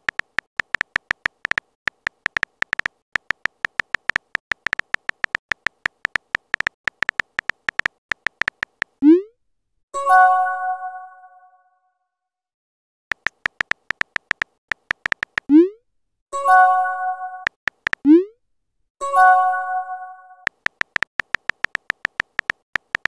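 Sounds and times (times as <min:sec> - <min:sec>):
phone keyboard typing clicks: 0:00.0 - 0:09.0, 0:13.1 - 0:15.6, 0:17.5 - 0:18.2, 0:20.5 - 0:23.0.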